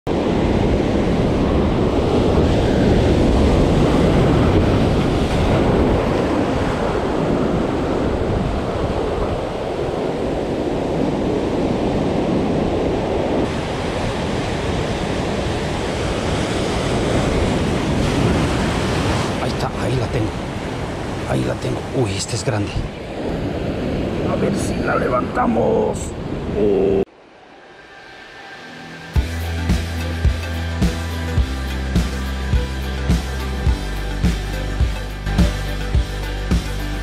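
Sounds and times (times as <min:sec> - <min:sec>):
wind buffeting microphone: 0:00.1 - 0:22.0
surf breaking against rocks: 0:13.4 - 0:22.2.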